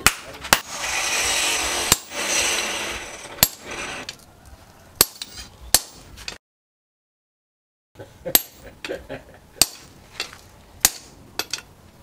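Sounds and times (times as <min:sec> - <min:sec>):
steady hiss: 0:00.6 - 0:04.0.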